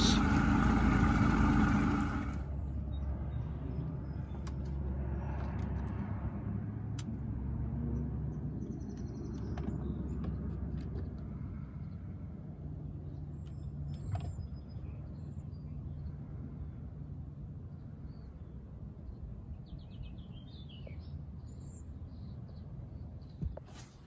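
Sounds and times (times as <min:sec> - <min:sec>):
boat motor rumbling: 0:00.0 - 0:02.9.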